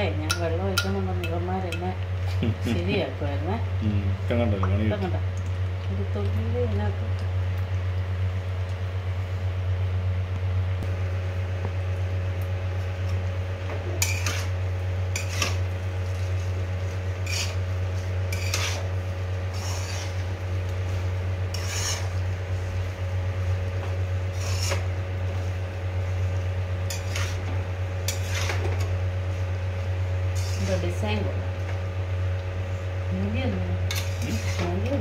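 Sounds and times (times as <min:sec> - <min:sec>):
steady low hum: 0:00.0 - 0:35.0
metal spatula scraping pan: 0:14.0 - 0:14.5, 0:15.2 - 0:15.6, 0:17.2 - 0:17.6, 0:18.3 - 0:18.9, 0:19.5 - 0:20.3, 0:21.5 - 0:22.2, 0:24.3 - 0:24.9, 0:26.9 - 0:27.4, 0:28.1 - 0:28.8, 0:30.3 - 0:30.8, 0:33.9 - 0:34.9.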